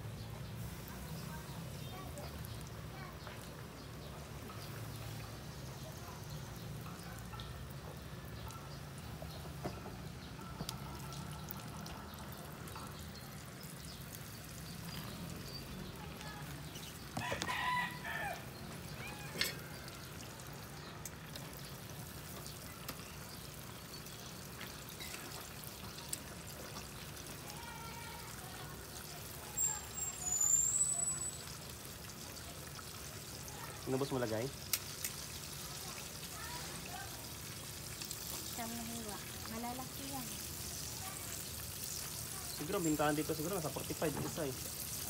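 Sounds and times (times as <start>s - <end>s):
chicken sizzling in hot oil: 0.0s - 45.0s
rooster crowing: 17.2s - 19.8s.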